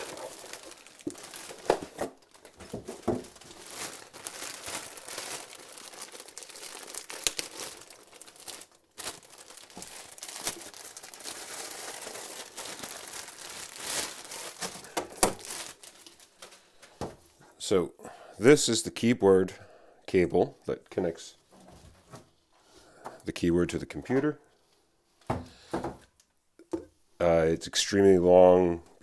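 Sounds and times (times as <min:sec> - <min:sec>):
plastic bag crinkling: 0:00.0 - 0:17.2.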